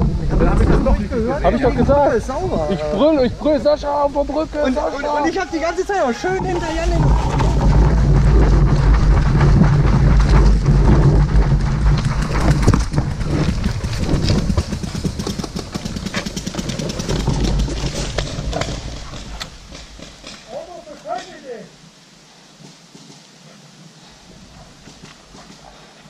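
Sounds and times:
loud low rumble: 6.3 - 15.8.

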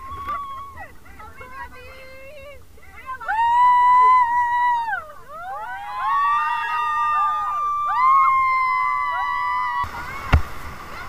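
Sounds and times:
people whooping: 0.0 - 1.0, 3.0 - 10.2
whitewater rapids rushing: 0.0 - 11.0.

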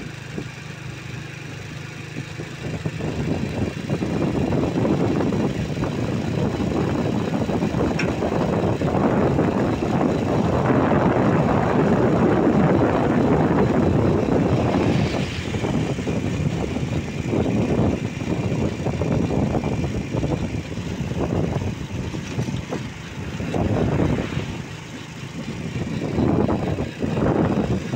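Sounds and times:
vehicle engine and road noise: 0.0 - 27.9.

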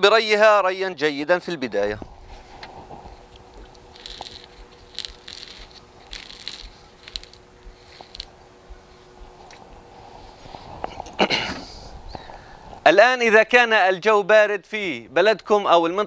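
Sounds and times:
water pouring onto soil: 3.9 - 8.3.

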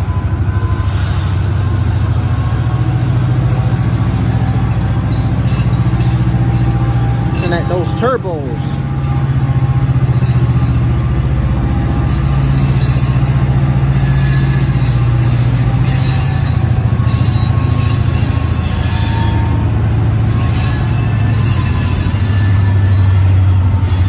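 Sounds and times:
diesel locomotive engine drone: 0.0 - 24.0
faint wheel squeal: 0.0 - 24.0.

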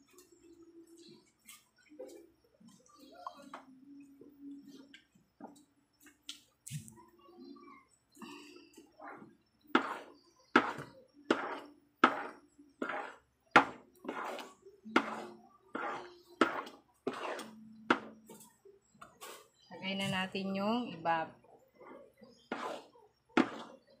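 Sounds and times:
utensil stirring thick paste: 8.3 - 20.5, 21.2 - 24.0.

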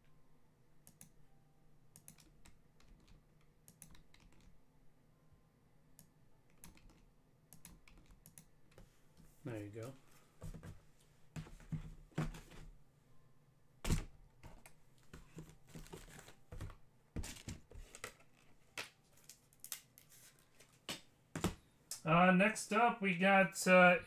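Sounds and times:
card packaging clicks and rustles: 15.1 - 21.0.

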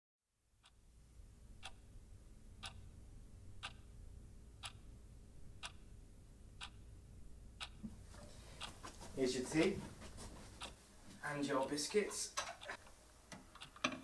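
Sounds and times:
low steady hum: 0.4 - 13.6
clock ticking: 0.6 - 0.8, 1.5 - 2.0, 2.6 - 6.0, 6.6 - 8.0, 10.6 - 14.0.

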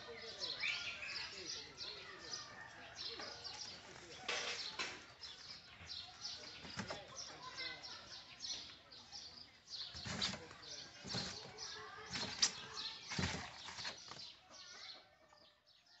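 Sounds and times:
bamboo basket rustling and creaking: 6.4 - 7.4, 9.8 - 14.4.

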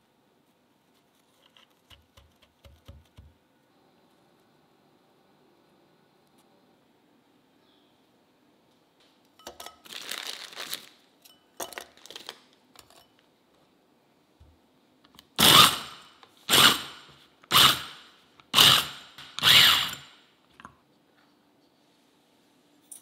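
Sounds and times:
food chopper grinding: 15.4 - 16.9, 18.6 - 20.0.

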